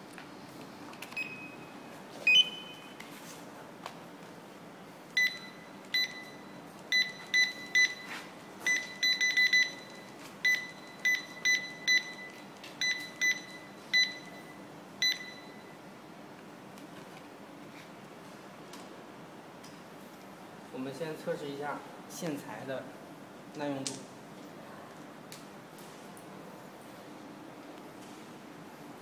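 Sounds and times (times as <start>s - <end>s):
barcode scanner beeps: 2.3s - 3.0s, 5.2s - 15.7s.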